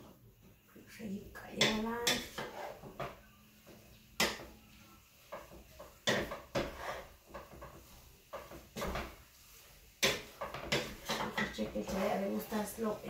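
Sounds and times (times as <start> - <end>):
spoon knocking against pan: 1.6 - 3.2, 4.2 - 4.6, 5.3 - 9.2, 10.0 - 12.0
wooden spoon stirring spaghetti: 1.6 - 13.0.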